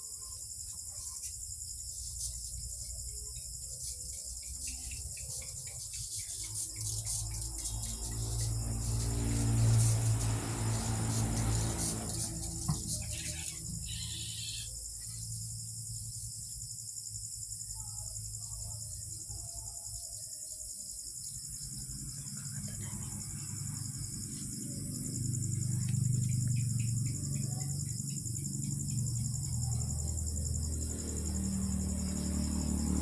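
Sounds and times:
crickets chirping: 0:00.0 - 0:33.0.

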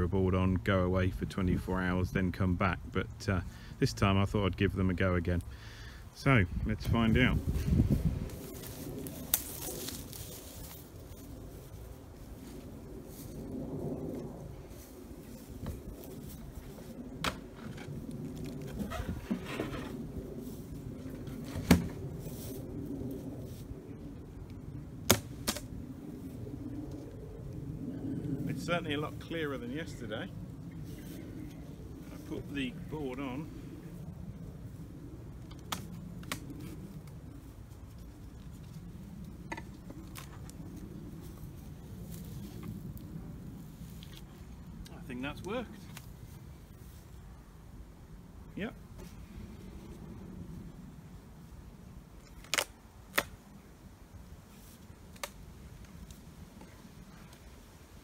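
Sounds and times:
steady low rumble: 0:00.0 - 0:58.0
wooden hive boxes cracking: 0:52.3 - 0:53.4.

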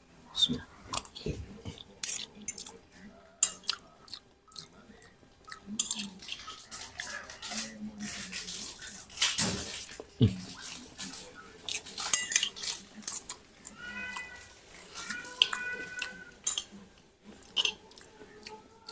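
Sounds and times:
cutlery clinking on plate: 0:05.8 - 0:13.4, 0:14.0 - 0:16.8, 0:17.4 - 0:17.8.

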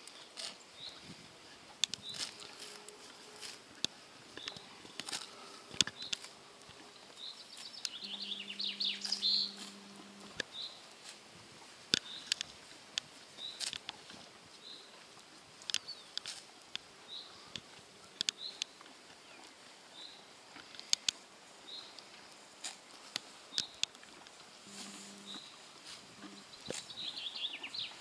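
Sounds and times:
horse chewing grass: 0:00.0 - 0:28.0
bird calling: 0:04.4 - 0:10.8, 0:26.2 - 0:28.0
bird chirping quickly: 0:07.7 - 0:09.6.

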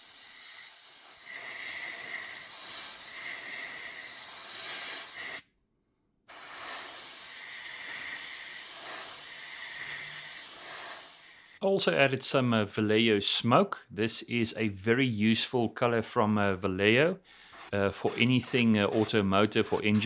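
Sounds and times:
airbrush spraying hiss: 0:00.0 - 0:05.4, 0:06.3 - 0:11.6, 0:17.5 - 0:20.0.

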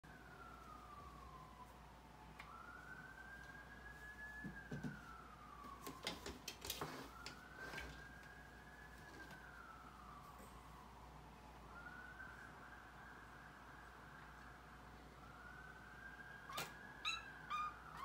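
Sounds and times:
faint siren wailing: 0:00.0 - 0:18.0.

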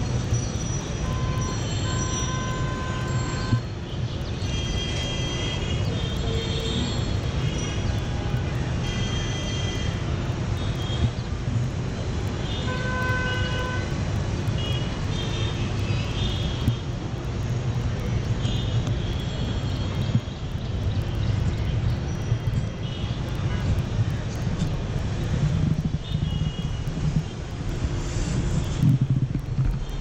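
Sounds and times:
low traffic rumble: 0:00.0 - 0:30.0
vehicle horns tooting: 0:01.0 - 0:03.7, 0:12.5 - 0:14.0.

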